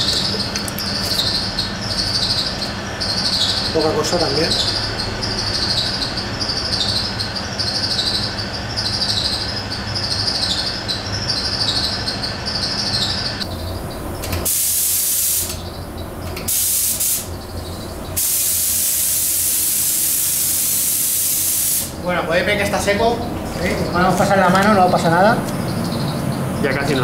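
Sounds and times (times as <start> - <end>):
steady hum: 0.0 - 27.0
spray gun hissing: 14.4 - 15.6, 16.5 - 17.4, 18.2 - 22.0.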